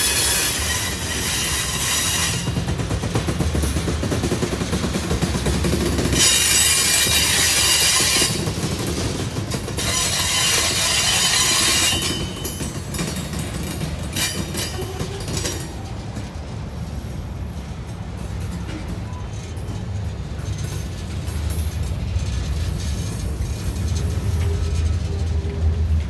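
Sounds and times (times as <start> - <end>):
high-pitched wheel squeal: 0.0 - 2.6, 6.1 - 8.4, 9.8 - 12.6
freight cars rolling on steel wheels: 0.0 - 26.0
wheels clacking over rail joints: 0.0 - 26.0.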